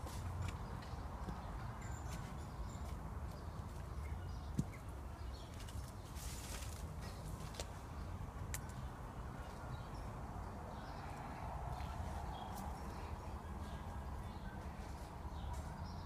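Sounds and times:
footsteps on a path: 0:05.4 - 0:08.0, 0:11.0 - 0:15.8.

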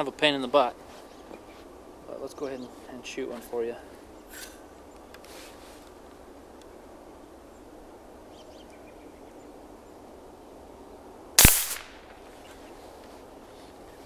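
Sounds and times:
pellet rifle shot crack: 0:11.4 - 0:12.2.

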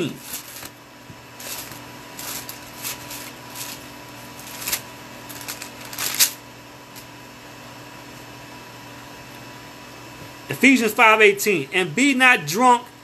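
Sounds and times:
pages rustling: 0:00.0 - 0:07.1.

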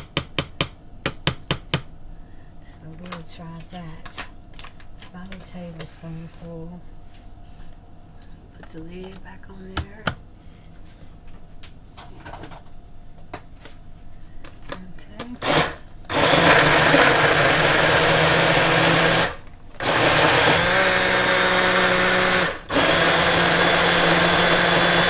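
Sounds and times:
blender running: 0:15.4 - 0:25.0.

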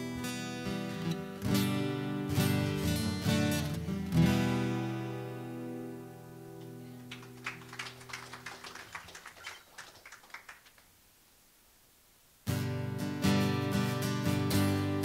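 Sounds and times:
acoustic guitar chord ringing: 0:00.0 - 0:07.1, 0:12.5 - 0:15.0.

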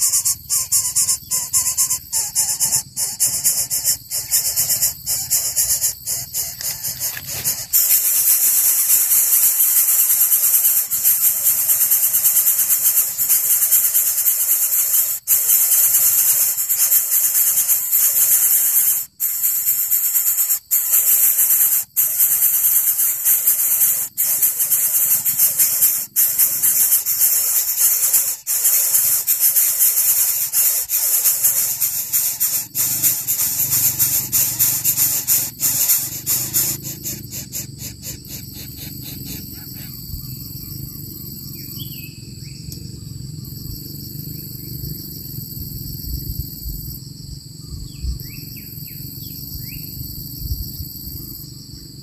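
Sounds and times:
nestlings hissing begging calls: 0:00.0 - 0:41.2.

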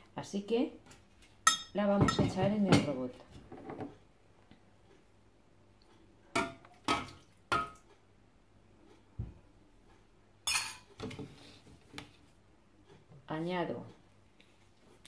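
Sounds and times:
spoon clinking against bowl: 0:01.4 - 0:02.3, 0:10.4 - 0:10.9.

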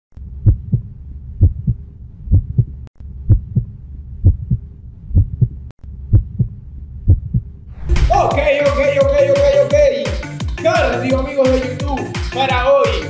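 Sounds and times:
heartbeat thumps: 0:00.2 - 0:09.2.

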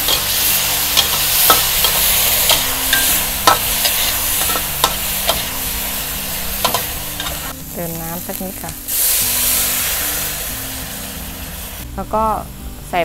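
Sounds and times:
metal spatula scraping wok: 0:00.0 - 0:07.8
garlic sizzling in hot oil: 0:00.0 - 0:12.4.

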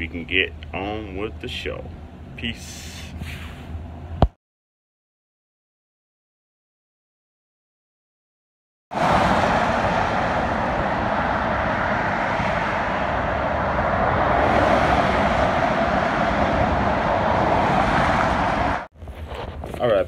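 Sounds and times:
cars passing on wet road: 0:08.9 - 0:18.9.

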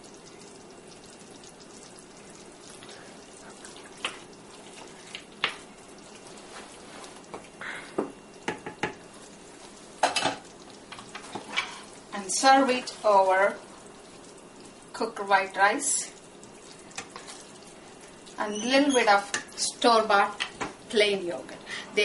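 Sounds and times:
quiet sizzle from pan: 0:00.0 - 0:22.0
wooden spoon stirring in pan: 0:01.1 - 0:21.2
spoon knocking against pan: 0:08.0 - 0:09.0.

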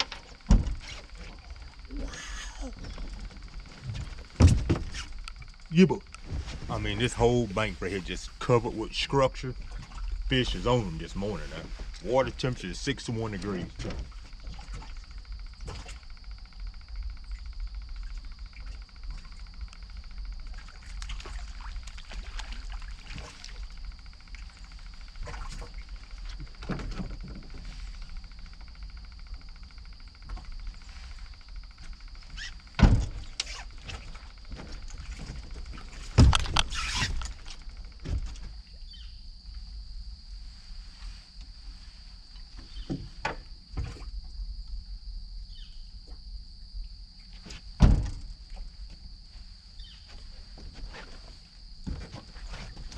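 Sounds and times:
thump: 0:04.4 - 0:05.0, 0:47.8 - 0:48.3.

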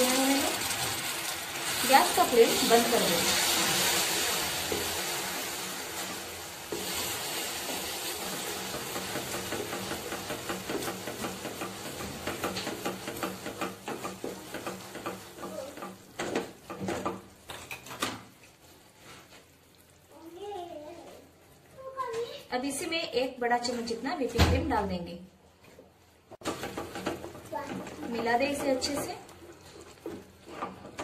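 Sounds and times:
sugar sizzling and bubbling in pan: 0:00.0 - 0:24.0, 0:26.3 - 0:31.0
spoon scraping pan: 0:26.4 - 0:31.0.

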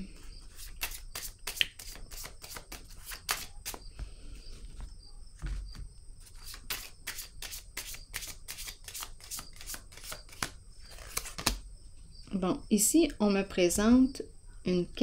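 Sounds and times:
cards being shuffled: 0:00.4 - 0:11.6.

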